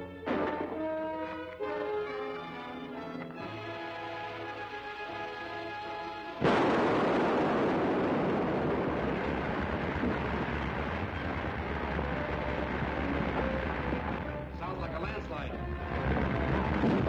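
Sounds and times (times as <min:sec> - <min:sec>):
orchestral music: 0:00.0 - 0:06.5
loud explosive blast: 0:00.2 - 0:01.0, 0:06.4 - 0:14.3, 0:15.9 - 0:17.0
rumble of falling rock and debris: 0:06.4 - 0:14.4, 0:15.9 - 0:17.0.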